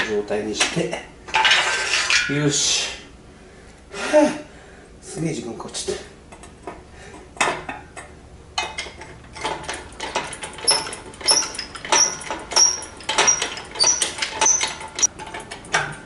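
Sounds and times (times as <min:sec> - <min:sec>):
hydraulic hoist clanking and squeaking: 0:08.6 - 0:16.0.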